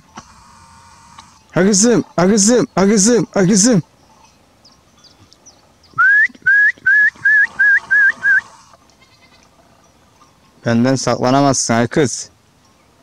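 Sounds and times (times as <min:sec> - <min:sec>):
man whistling short notes: 0:06.0 - 0:08.5.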